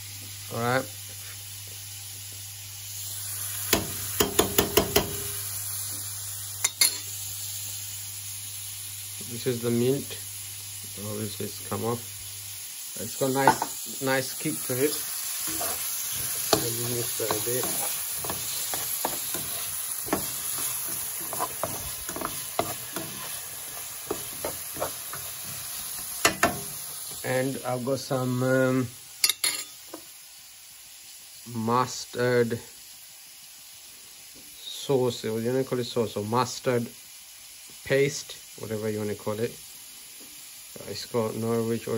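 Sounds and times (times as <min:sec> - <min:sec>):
vegetables sizzling in a pan: 0:00.0 - 0:41.9
metal spoon knocking on frying pan: 0:03.7 - 0:05.3, 0:16.5 - 0:23.3, 0:26.2 - 0:26.8.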